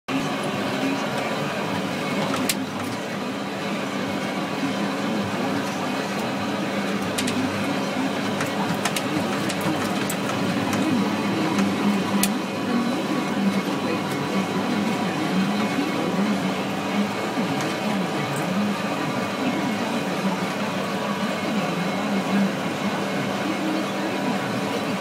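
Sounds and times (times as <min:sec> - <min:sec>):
tractor and mower drone: 0:00.1 - 0:25.0
clicks and rattles: 0:08.3 - 0:10.8.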